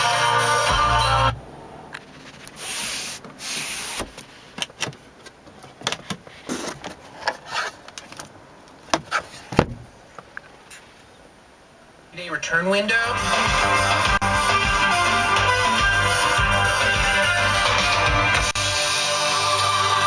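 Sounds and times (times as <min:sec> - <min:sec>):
short rustling hisses: 0:02.1 - 0:04.6.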